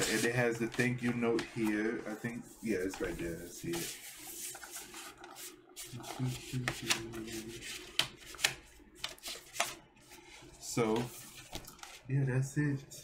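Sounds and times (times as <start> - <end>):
paper sleeve rustling and scraping: 0.0 - 8.4.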